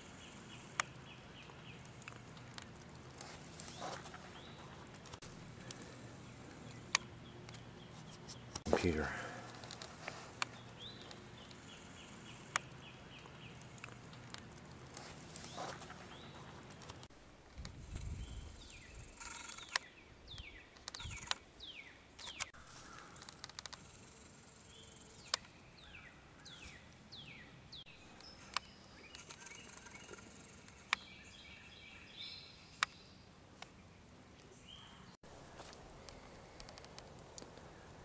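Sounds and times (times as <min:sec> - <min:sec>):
birds singing: 0:00.0 - 0:17.1, 0:17.9 - 0:23.7, 0:24.6 - 0:36.9
sharp clicks: 0:00.5 - 0:05.8, 0:12.2 - 0:17.7, 0:22.2 - 0:22.6, 0:36.0 - 0:37.7.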